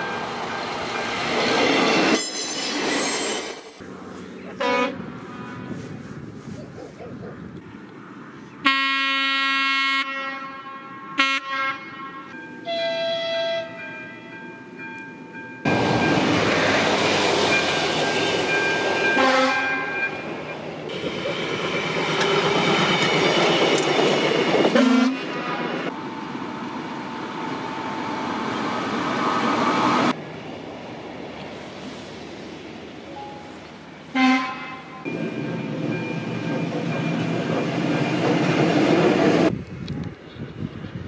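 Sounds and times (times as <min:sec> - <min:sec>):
trains passing: 0:00.0 - 0:41.0
railway horn: 0:04.6 - 0:06.0, 0:08.6 - 0:14.3, 0:19.1 - 0:20.2, 0:24.7 - 0:25.5, 0:34.1 - 0:35.1.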